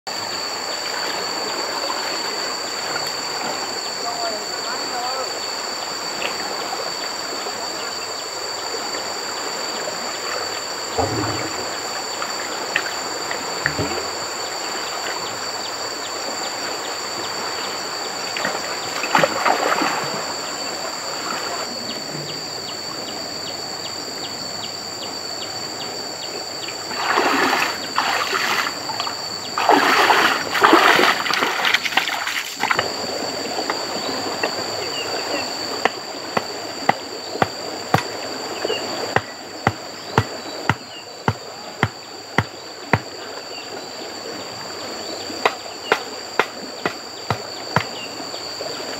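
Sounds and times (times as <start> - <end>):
water splashing: 9.9 - 15.3, 18.2 - 21.8, 26.9 - 43.1
water running: 27.0 - 32.9.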